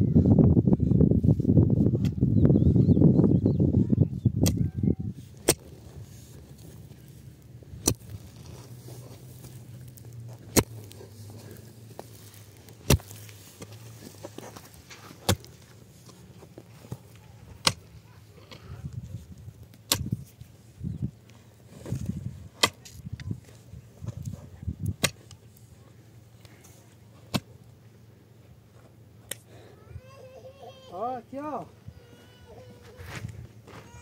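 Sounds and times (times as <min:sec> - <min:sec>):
mattock striking stony soil: 0:04.4 - 0:25.7, 0:26.4 - 0:27.8.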